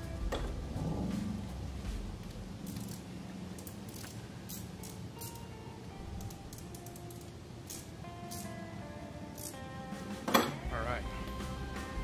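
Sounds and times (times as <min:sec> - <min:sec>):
low steady hum: 0:00.0 - 0:12.0
socket ratchet clicking: 0:02.6 - 0:08.6, 0:09.3 - 0:09.6.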